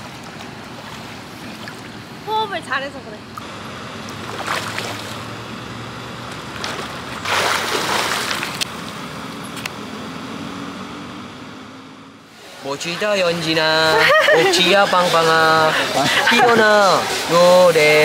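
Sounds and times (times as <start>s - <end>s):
swimmer splashing in pool: 4.2s - 5.3s, 6.6s - 8.6s, 13.3s - 18.0s.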